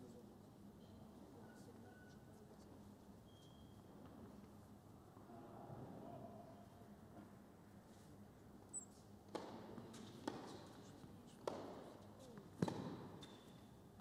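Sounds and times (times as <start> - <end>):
indoor arena hum: 0.0 - 14.0
tennis ball hit and bouncing: 9.3 - 10.8, 11.4 - 13.6.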